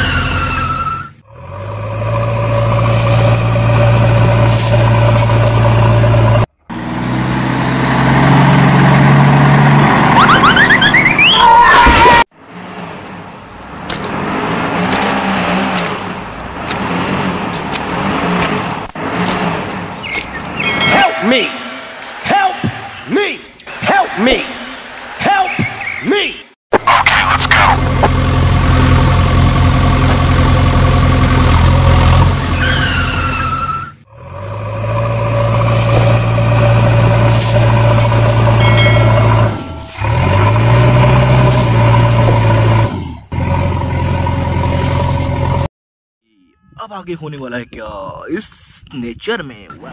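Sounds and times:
diesel engine running: 0:00.0 - 0:11.4, 0:26.9 - 0:45.7
short falling whistle: 0:10.2 - 0:12.1
car engine revving unevenly: 0:34.1 - 0:45.6.

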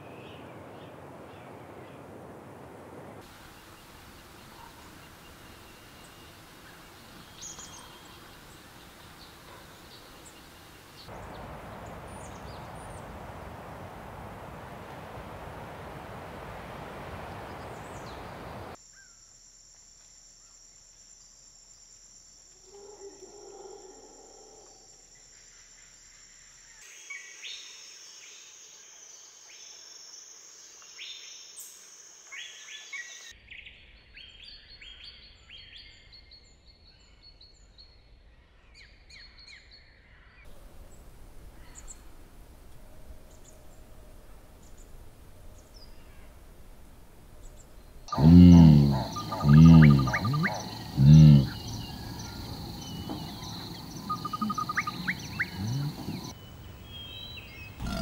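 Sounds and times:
bird chirps: 0:47.4 - 0:58.0
high insect buzz: 0:48.1 - 0:56.5, 0:57.8 - 0:58.0.

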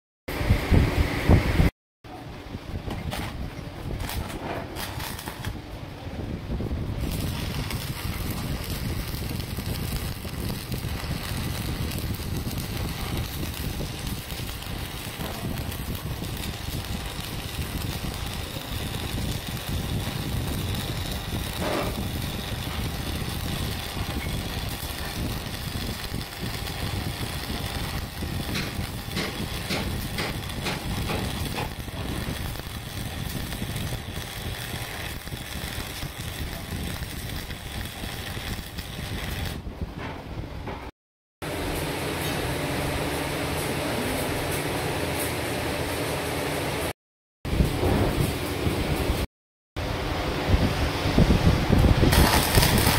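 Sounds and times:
welding arc crackling hiss: 0:03.1 - 0:05.7, 0:06.8 - 0:39.7, 0:41.5 - 0:46.9, 0:51.2 - 0:52.9.

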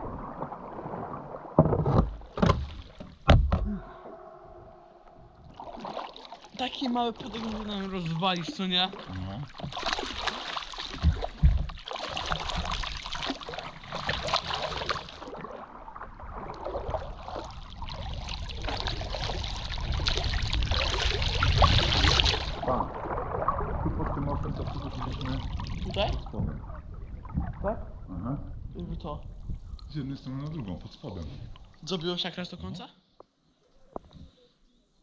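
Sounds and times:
paddles splashing in water: 0:00.0 - 0:03.6, 0:04.9 - 0:28.0
dull knocks: 0:01.6 - 0:03.7.

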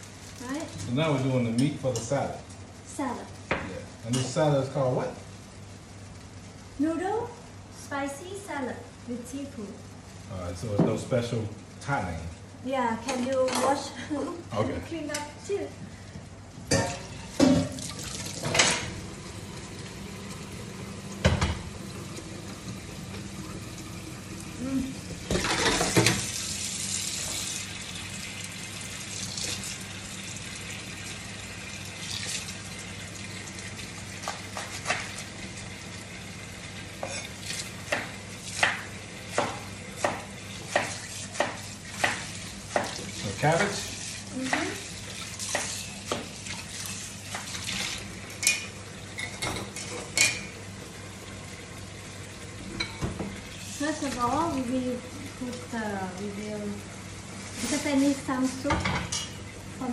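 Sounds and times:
pots and pans clinking: 0:16.7 - 0:19.0, 0:25.2 - 0:26.4, 0:37.0 - 0:44.7, 0:48.4 - 0:50.6, 0:52.7 - 0:53.4, 0:58.6 - 0:59.5
tap water running and splashing: 0:16.7 - 0:59.9.

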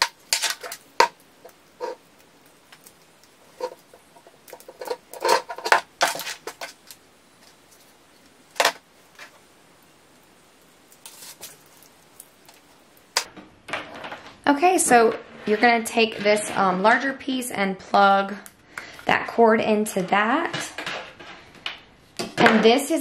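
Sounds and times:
cables clicking and rustling: 0:00.0 - 0:16.6.

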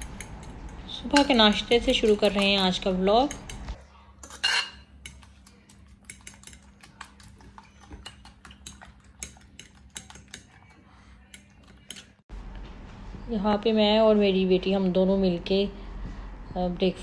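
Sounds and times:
fork clicking against plate: 0:00.0 - 0:03.8, 0:05.0 - 0:12.2.

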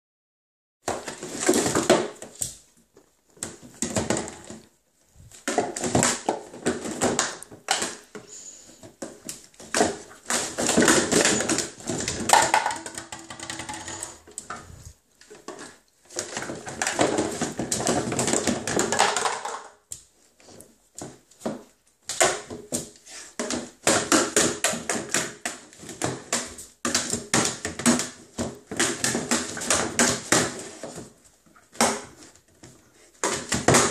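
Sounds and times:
plastic toys clattering: 0:03.4 - 0:19.9.

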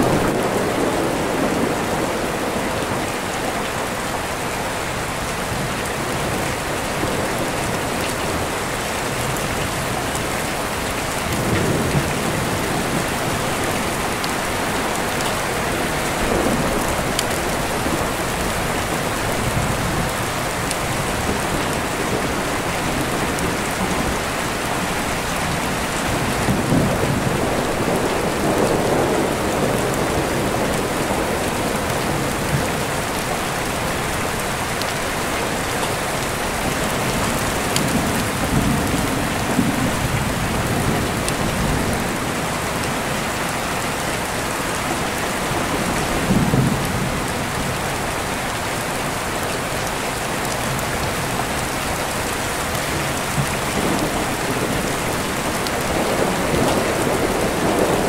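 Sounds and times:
steady rain falling: 0:00.0 - 0:58.0
deep rolling thunder: 0:11.2 - 0:32.8, 0:53.2 - 0:58.0.

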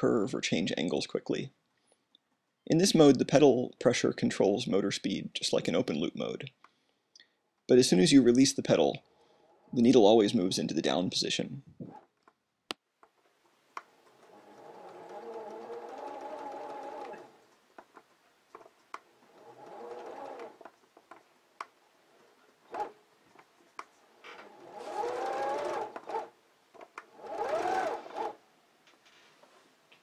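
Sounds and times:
sewing machine motor running: 0:13.8 - 0:17.5, 0:18.6 - 0:20.8, 0:22.6 - 0:23.0, 0:24.1 - 0:28.4
small clicks: 0:25.8 - 0:27.1.

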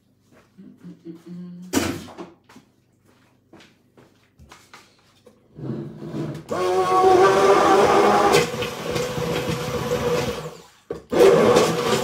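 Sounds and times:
stick blender motor whine: 0:06.2 - 0:12.0.

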